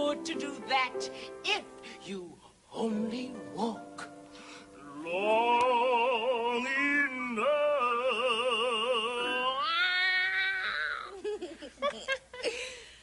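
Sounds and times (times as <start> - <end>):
person singing operatically: 0.0 - 4.2, 4.8 - 10.9.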